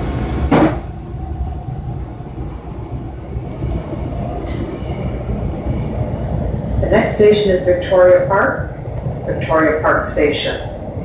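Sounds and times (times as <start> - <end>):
subway train rumbling on rails: 0.0 - 11.0
sharp knock: 0.5 - 0.8.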